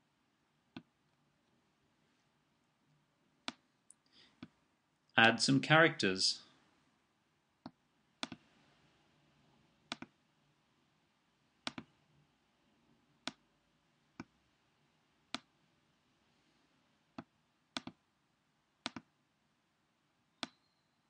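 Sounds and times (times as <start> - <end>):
computer mouse clicks: 3.4 - 3.6, 7.6 - 8.5, 9.9 - 10.2, 11.6 - 11.9, 13.2 - 13.4, 17.2 - 18.0, 18.8 - 19.1, 20.4 - 20.6.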